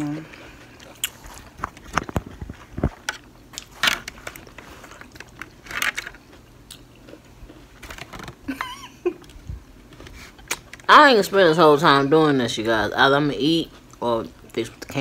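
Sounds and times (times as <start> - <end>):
chewing and biting: 0.4 - 7.8.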